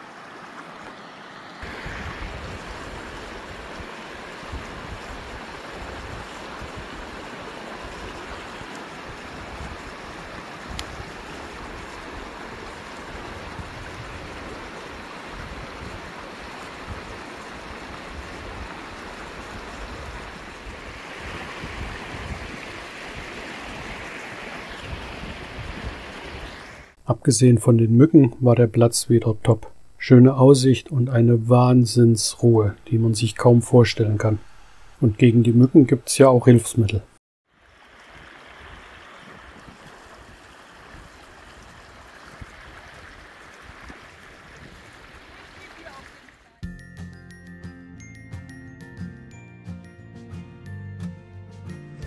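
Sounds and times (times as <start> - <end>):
stream rushing over stones: 0.0 - 27.0, 32.2 - 35.6, 37.5 - 46.6
wind buffeting microphone: 1.6 - 26.8, 38.7 - 45.6.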